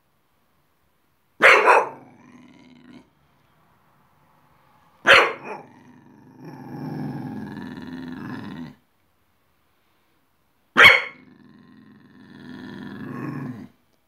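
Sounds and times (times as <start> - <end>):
dog barking: 1.4 - 2.2, 5.0 - 5.8, 10.8 - 11.2
dog growling: 1.8 - 3.2, 5.3 - 8.8, 11.0 - 13.8.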